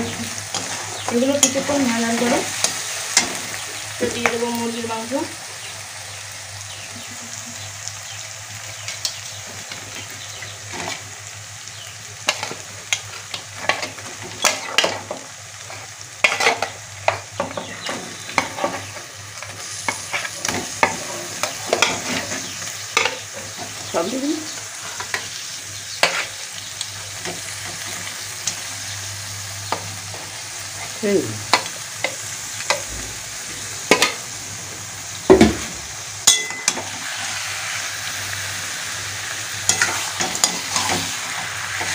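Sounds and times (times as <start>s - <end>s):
food sizzling in hot oil: 0.0s - 41.9s
spatula scraping metal pan: 15.7s - 16.7s.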